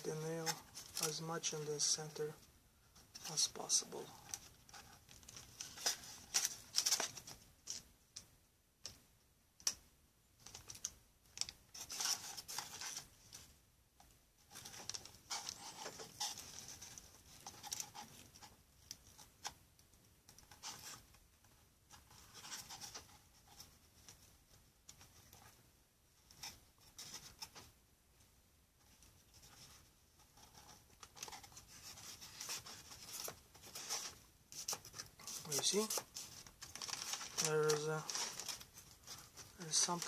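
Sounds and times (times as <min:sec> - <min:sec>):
small clicks and taps: 0:09.6 - 0:11.6.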